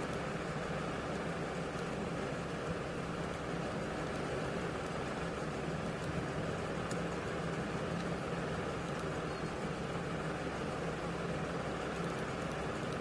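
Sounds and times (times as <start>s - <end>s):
faint clicks: 1.0s - 9.8s, 11.8s - 13.0s.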